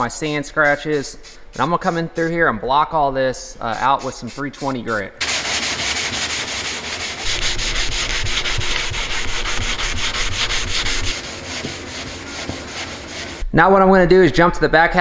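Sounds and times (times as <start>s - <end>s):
hand sanding rasp: 0.6s - 2.4s, 3.8s - 13.4s.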